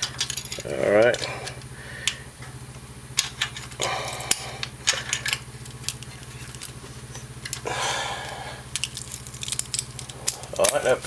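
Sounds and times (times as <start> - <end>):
feeler gauge blades clinking: 0.0 - 11.0
steady low hum: 0.0 - 11.0
hand tools clicking on metal: 3.2 - 6.8, 7.4 - 11.0.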